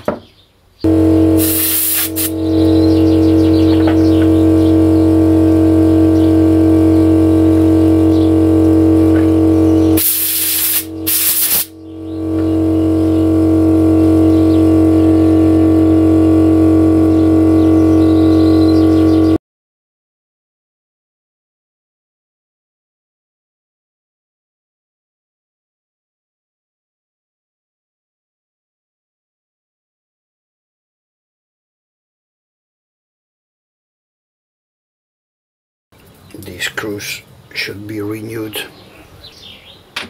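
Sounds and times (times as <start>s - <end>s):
coffee grinder motor humming: 0.9s - 19.4s
hiss: 1.4s - 2.3s, 10.0s - 11.7s.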